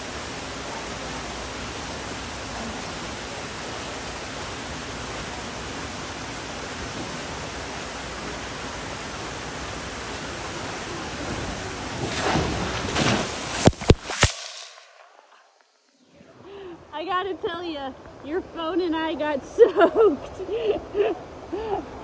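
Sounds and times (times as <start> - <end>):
water rushing from slide tube: 0.0 - 14.3
loud splash into pool: 10.4 - 15.4.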